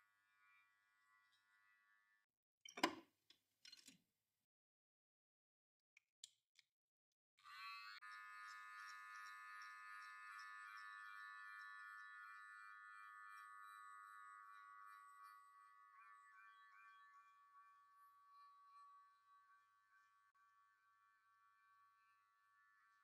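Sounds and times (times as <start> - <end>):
electric hair clipper whine: 7.4 - 19.1.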